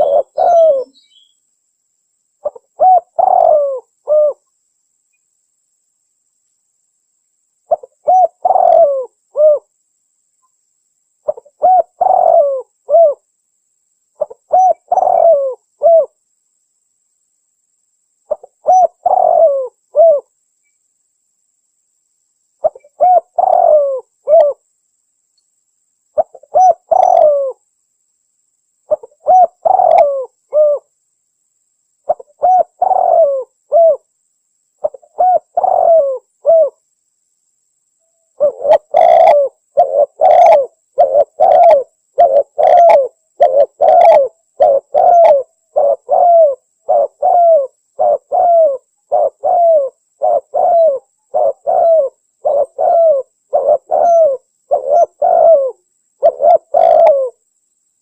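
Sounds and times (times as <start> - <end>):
dove cooing: 0.0 - 1.0, 2.4 - 4.4, 7.7 - 9.7, 11.2 - 13.2, 14.2 - 16.2, 18.3 - 20.3, 22.6 - 24.6, 26.2 - 27.6, 28.9 - 30.9, 32.1 - 34.1, 34.8 - 36.8, 38.4 - 57.4.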